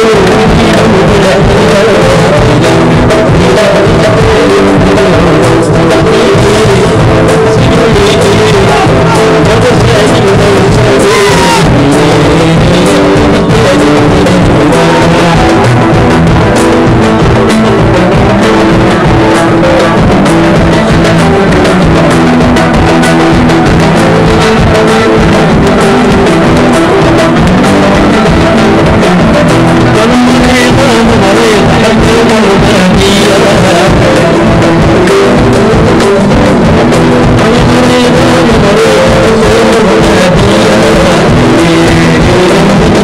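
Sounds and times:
drums: 0.0s - 43.0s.

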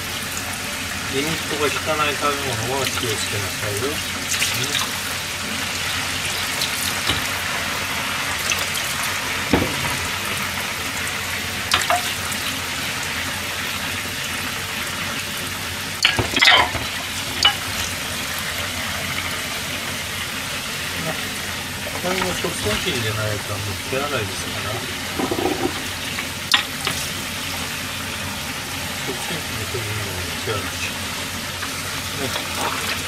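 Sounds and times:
tap running into sink: 6.9s - 7.3s, 9.4s - 10.4s, 25.1s - 27.0s
crockery clinking: 16.0s - 17.6s, 25.2s - 25.9s.

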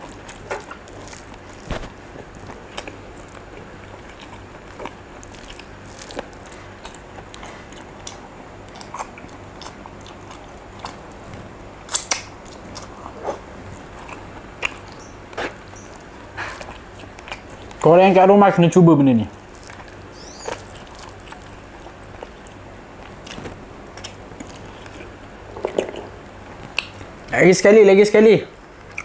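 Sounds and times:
person chewing: 0.0s - 17.9s, 19.3s - 27.2s
faint low hum: 0.0s - 29.0s
wet mouth clicks: 14.0s - 15.9s.

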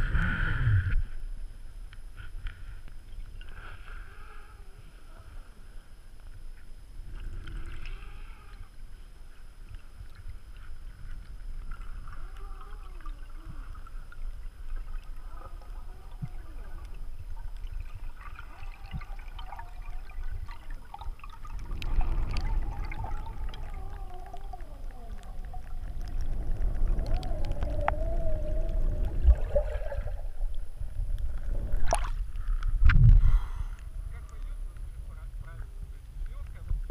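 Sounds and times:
faint wavering tones: 0.0s - 32.9s
underwater rumble of moving water: 0.0s - 36.9s
small bubbly clicks: 9.6s - 34.9s.

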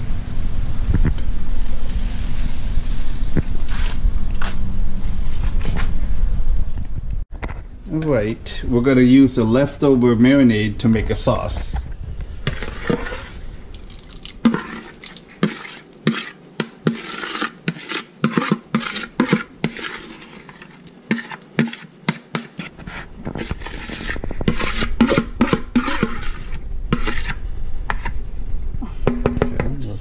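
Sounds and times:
metal spoon scraping a bowl: 12.5s - 13.4s, 14.4s - 28.1s.

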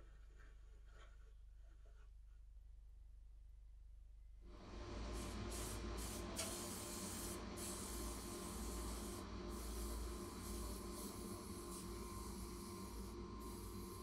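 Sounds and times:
aerosol spray can hissing: 5.1s - 14.0s.

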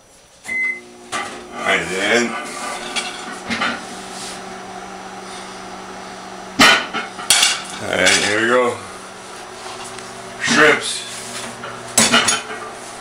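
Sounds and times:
frying pan clanking on stove: 11.6s - 12.6s.

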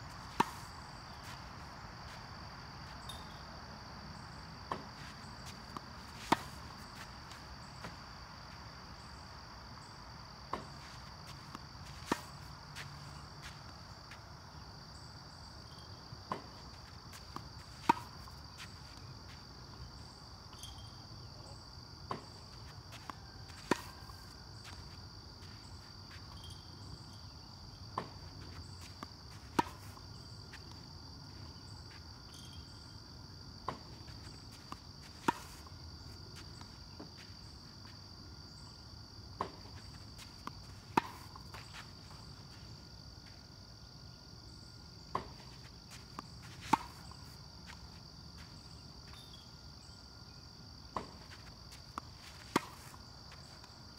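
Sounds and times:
crickets chirping: 0.0s - 53.9s
racket hitting tennis ball: 0.2s - 1.3s, 4.7s - 8.2s, 16.3s - 18.8s, 27.9s - 30.8s, 33.6s - 35.8s, 39.4s - 42.3s, 45.1s - 48.0s, 50.9s - 53.6s.

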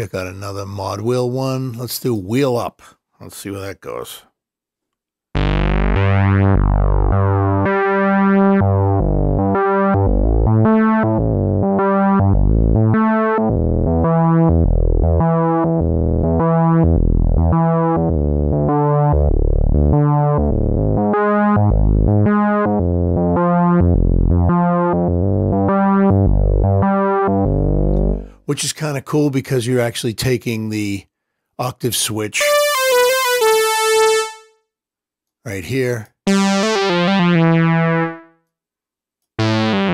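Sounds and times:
deep synth bass line: 5.4s - 28.4s, 32.4s - 34.5s, 36.3s - 38.3s, 39.4s - 39.9s.

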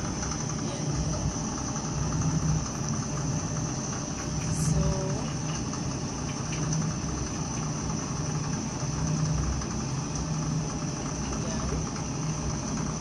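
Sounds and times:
washing machine hum: 0.0s - 13.0s.

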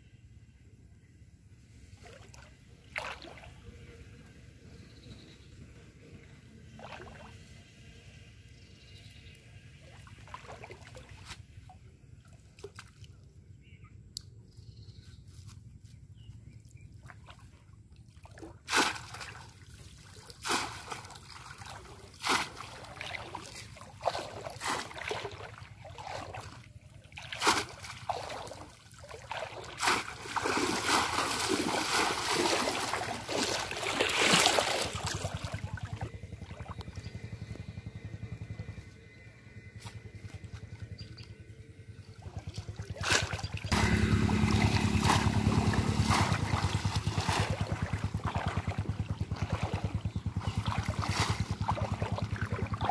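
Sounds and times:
splashes in muddy water: 2.0s - 3.6s, 6.7s - 7.5s, 9.8s - 13.3s, 16.9s - 37.2s, 42.1s - 52.9s
water sloshing: 2.0s - 3.6s, 6.7s - 7.4s, 9.8s - 13.2s, 16.9s - 37.0s, 42.2s - 52.9s.

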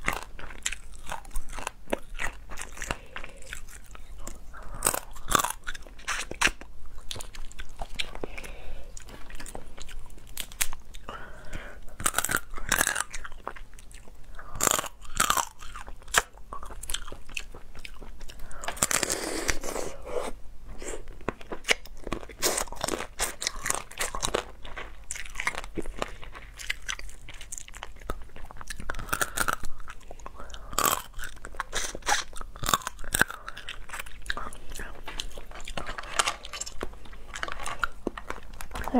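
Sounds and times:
crab shell crunching: 0.0s - 19.7s, 21.0s - 38.9s
chewing: 0.0s - 38.9s.

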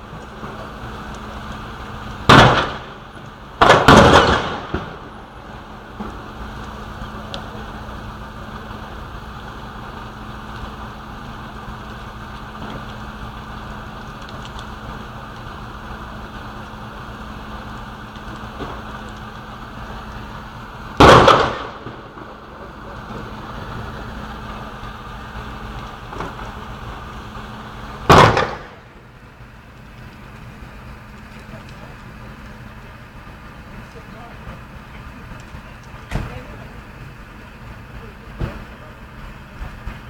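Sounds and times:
low background hum: 0.0s - 40.0s
explosion bangs: 2.3s - 3.0s, 3.6s - 5.1s, 21.0s - 22.2s, 28.0s - 28.9s.

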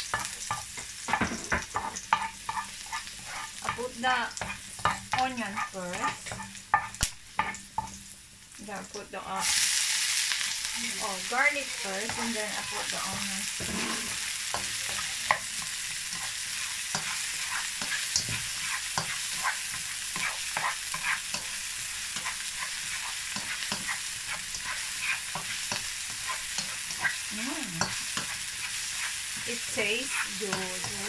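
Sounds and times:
onion and garlic sizzling in oil: 0.0s - 31.0s
plastic spatula scraping a pan: 12.0s - 14.2s.

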